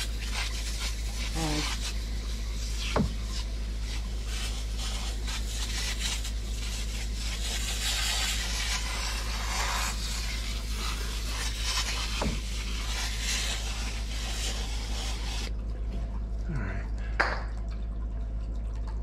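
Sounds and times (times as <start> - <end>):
aerosol can hissing: 0.0 - 15.5
steady low hum: 0.0 - 19.0.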